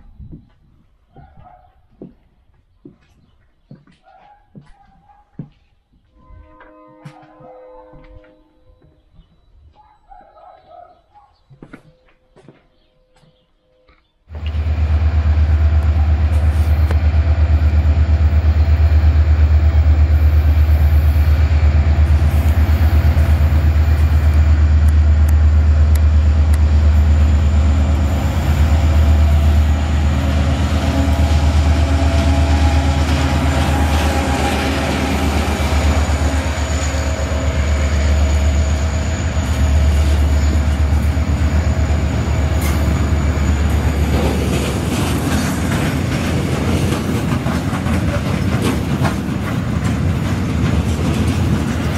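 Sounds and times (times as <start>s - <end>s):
diesel locomotive engine rumbling: 14.3s - 51.9s
freight wagons rolling on rails: 39.6s - 51.9s.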